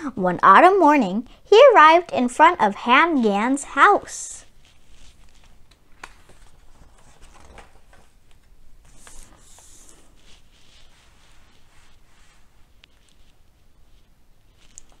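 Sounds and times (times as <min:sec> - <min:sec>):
book page turning: 0:04.4 - 0:13.5.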